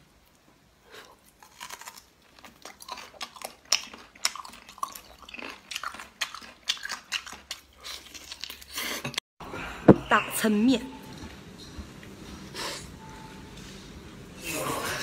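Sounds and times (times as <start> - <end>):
wet chewing smacks and clicks: 2.5 - 8.7.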